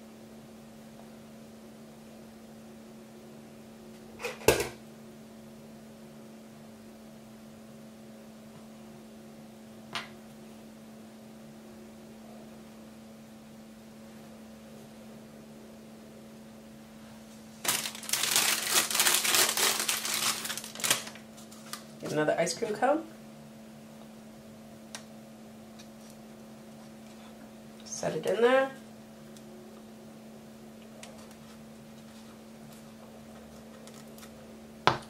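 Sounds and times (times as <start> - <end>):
steady low hum: 0.0 - 35.0
plastic wrapper crinkling: 17.6 - 22.0.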